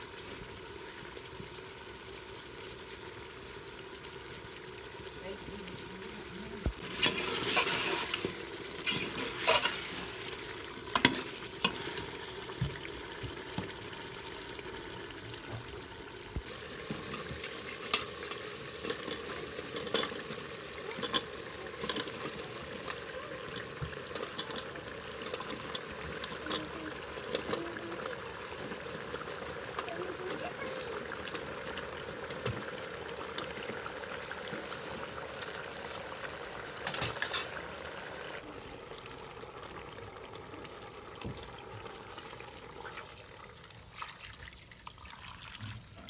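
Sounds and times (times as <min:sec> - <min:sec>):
frying sizzle: 0:00.0 - 0:46.0
ladle scraping metal pot: 0:06.8 - 0:12.0, 0:16.9 - 0:27.6, 0:36.6 - 0:37.6.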